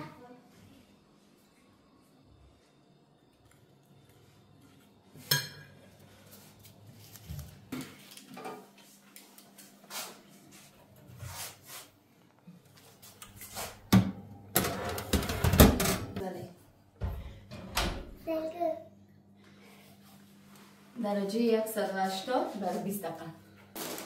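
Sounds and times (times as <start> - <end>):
dishes and utensils clattering: 5.2 - 5.8.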